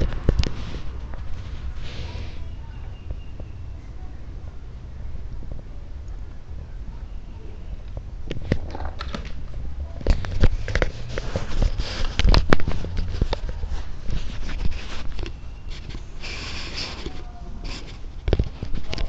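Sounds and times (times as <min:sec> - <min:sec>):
hissing rustle: 0:00.1 - 0:03.6, 0:08.5 - 0:19.0.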